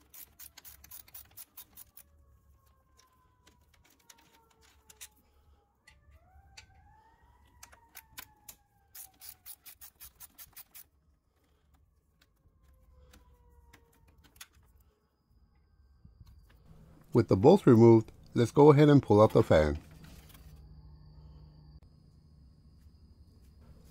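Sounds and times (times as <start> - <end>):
hand ratchet clicking: 0.0 - 2.0, 7.6 - 10.9.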